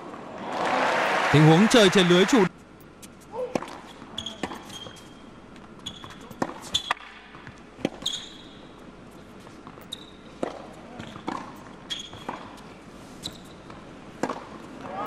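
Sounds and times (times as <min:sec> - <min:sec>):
shoes squeaking on court: 0:02.9 - 0:14.8
racket hitting tennis ball: 0:14.2 - 0:14.6.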